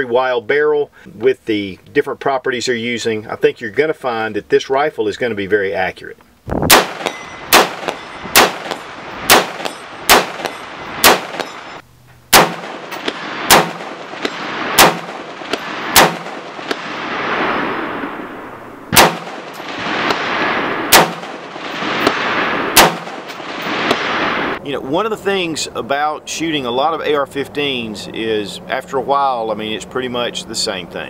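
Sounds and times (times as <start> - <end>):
rifle gunshots: 6.7 - 24.6
steel targets clanging: 6.9 - 11.8.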